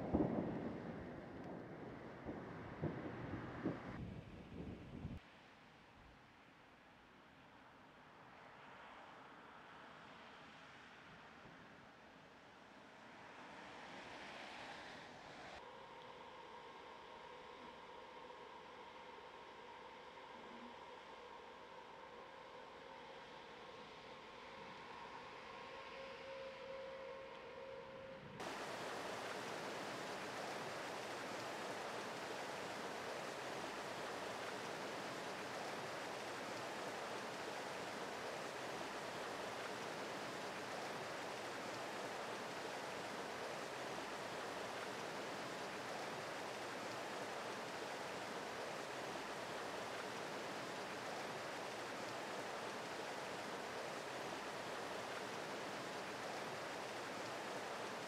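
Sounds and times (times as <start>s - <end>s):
rushing water: 28.4s - 58.0s.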